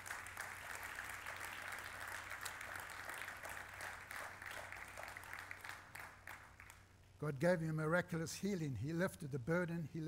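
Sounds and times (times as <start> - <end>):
crowd applauding: 0.0 - 6.8.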